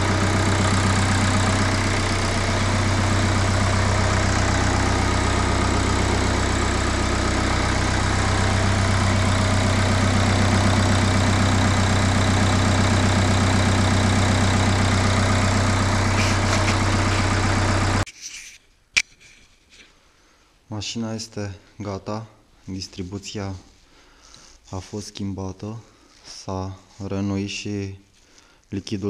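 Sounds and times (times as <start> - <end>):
diesel engine idling: 0.0 - 18.1.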